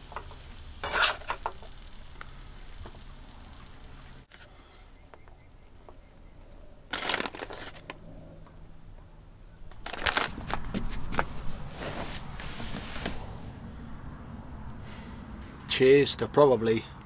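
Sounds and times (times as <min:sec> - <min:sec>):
food packaging crinkling: 0:06.9 - 0:08.0, 0:09.7 - 0:11.3.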